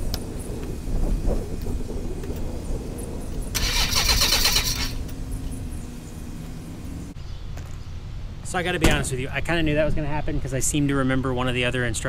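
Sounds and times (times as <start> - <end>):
electric starter cranking engine: 3.5 - 5.1.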